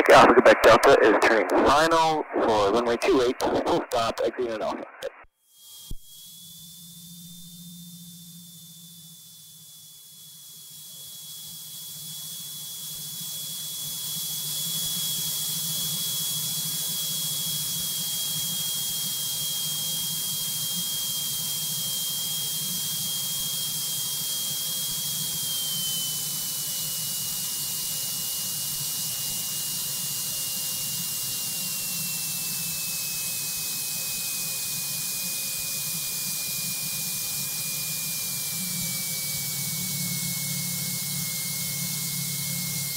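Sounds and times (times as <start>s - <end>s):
low aircraft engine drone: 0.0s - 5.2s.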